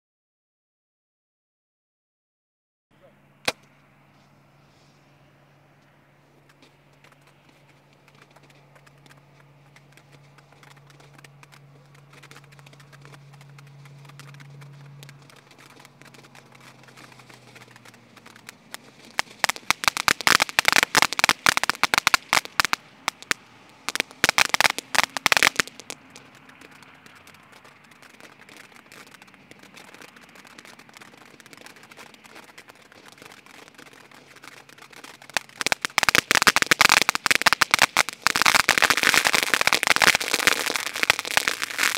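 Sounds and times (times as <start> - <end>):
loud rapid crackling: 6.9 - 41.9
firework fountain hissing: 9.9 - 41.9.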